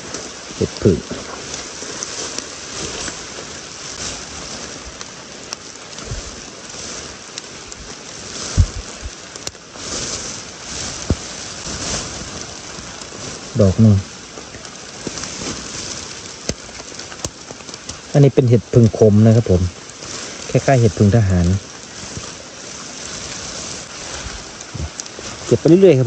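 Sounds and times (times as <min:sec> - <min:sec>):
rain on forest undergrowth: 0:00.0 - 0:26.0
low handling thumps: 0:08.5 - 0:09.2.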